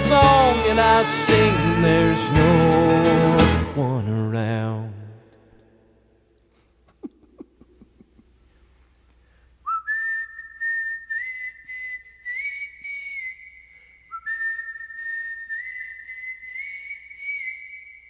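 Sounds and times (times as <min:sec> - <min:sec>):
person whistling a melody: 0:09.7 - 0:18.0.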